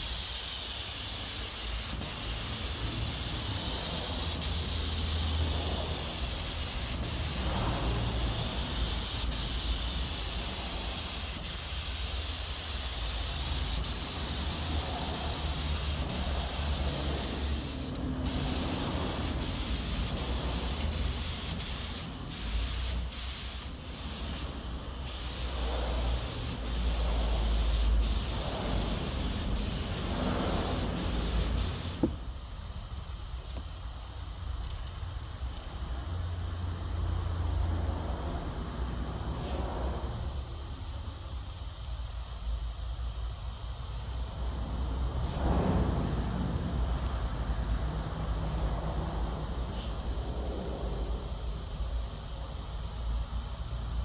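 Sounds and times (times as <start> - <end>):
spray gun hissing: 0.0 - 32.2.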